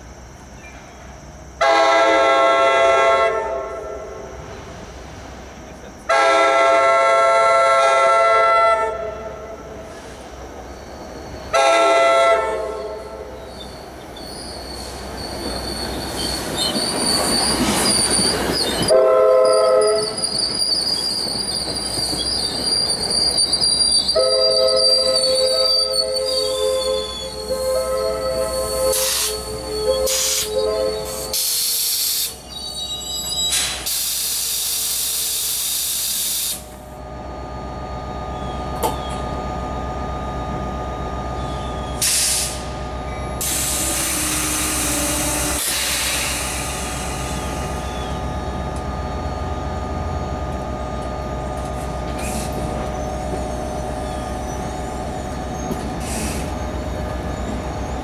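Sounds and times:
train cars rumbling: 0.0 - 35.7, 36.6 - 58.0
high wheel squeal: 12.7 - 34.0, 41.2 - 49.6, 52.2 - 58.0
air brakes hissing: 28.2 - 36.8, 41.9 - 42.8, 43.4 - 48.1, 52.2 - 53.1, 55.6 - 57.0.

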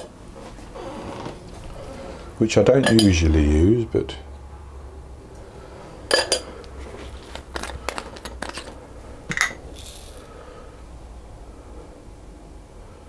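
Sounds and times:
sprinkles rattling in jar: 7.5 - 8.8, 9.6 - 10.3.

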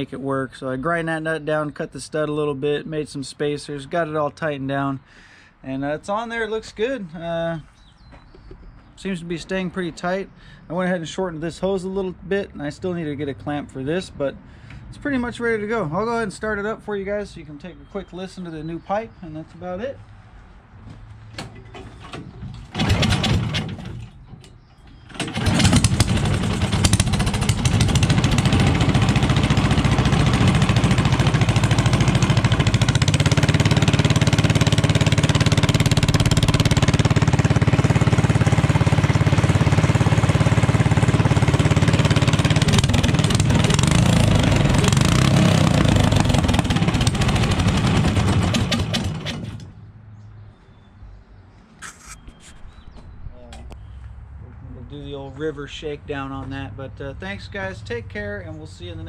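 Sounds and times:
engine starting and running: 21.3 - 49.8.

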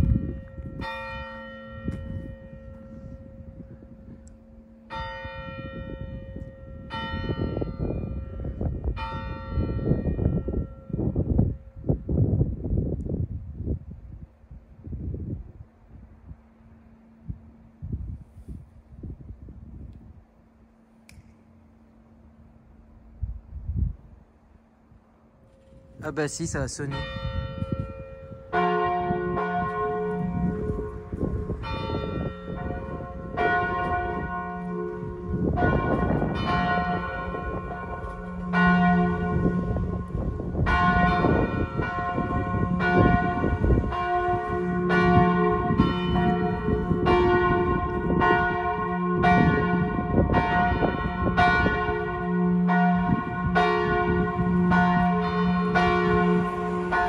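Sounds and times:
church bells tolling: 0.0 - 11.9, 25.6 - 57.0.

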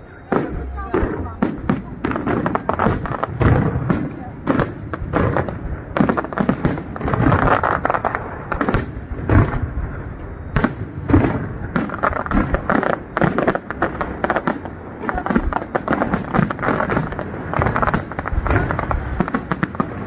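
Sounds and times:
firework crackling: 0.0 - 20.0
firework shells bursting: 10.4 - 20.0.

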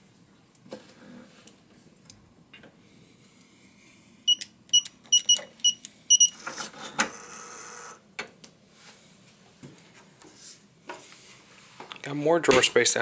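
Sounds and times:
keypad beeps: 4.3 - 6.4.

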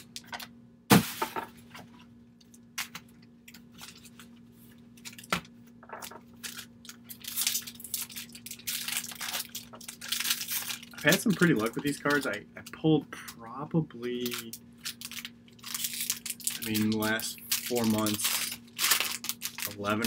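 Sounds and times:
wrapper crinkling and tearing: 5.9 - 13.4, 14.1 - 20.0.

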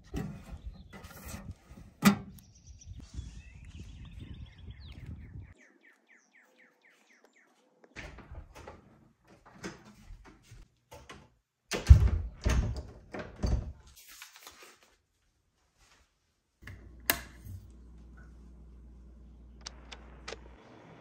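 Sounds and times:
low steady hum: 16.6 - 21.0.

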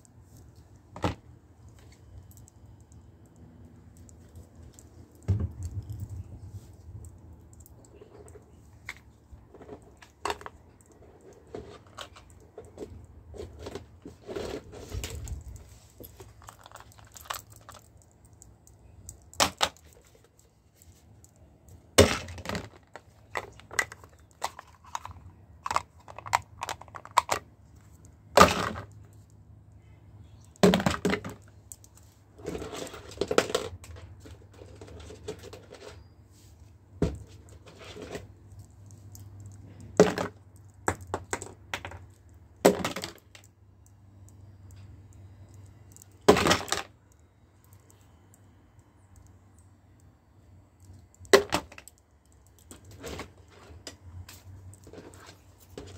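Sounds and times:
faint low hum: 0.0 - 55.9
plastic bottles clacking: 22.0 - 27.5, 39.9 - 43.5.

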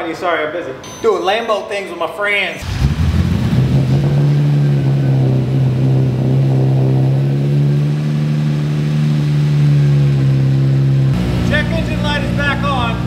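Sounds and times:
car engine idling: 2.6 - 13.0.

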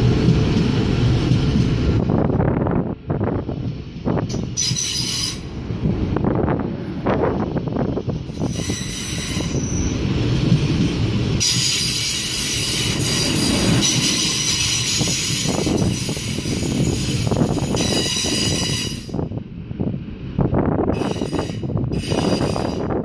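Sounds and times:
wheels rumbling on rails: 0.0 - 23.0
train wheels squealing: 4.3 - 5.5, 8.3 - 10.1, 11.4 - 19.2, 20.9 - 23.0.

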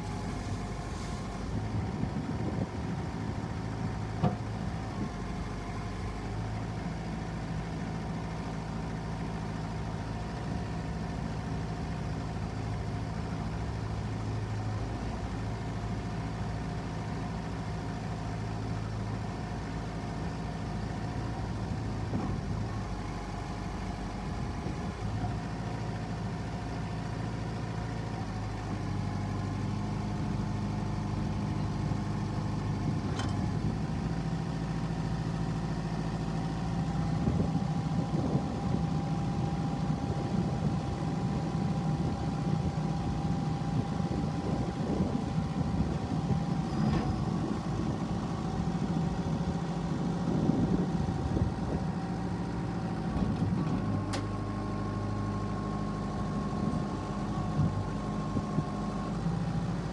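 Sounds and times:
backhoe digging gravel: 0.0 - 2.7
diesel engine running: 0.0 - 59.9.

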